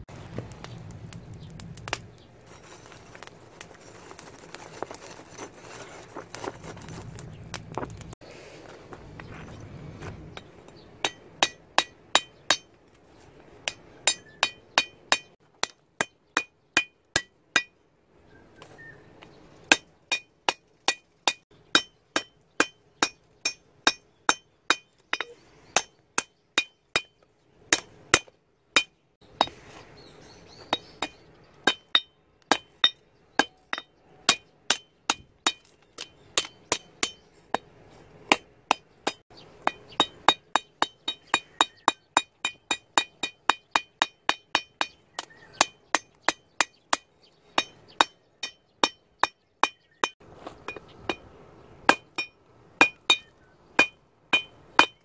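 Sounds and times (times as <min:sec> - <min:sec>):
hammer striking steel on anvil: 0:11.0 - 0:12.7, 0:13.6 - 0:17.7, 0:19.7 - 0:27.1.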